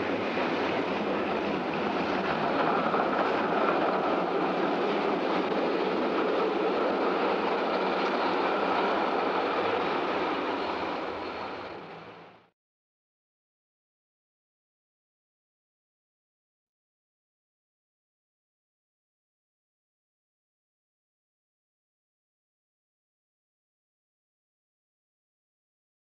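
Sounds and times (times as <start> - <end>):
tram wheels rolling on rails: 0.0 - 12.5.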